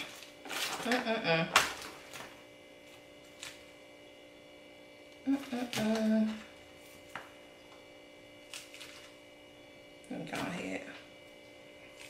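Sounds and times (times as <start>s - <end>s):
woman humming: 5.2s - 6.6s.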